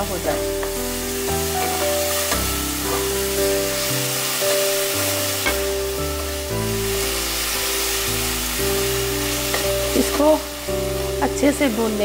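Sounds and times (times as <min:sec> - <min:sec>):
masala sizzling in hot oil: 0:00.0 - 0:12.0
music of sustained notes: 0:00.0 - 0:12.0.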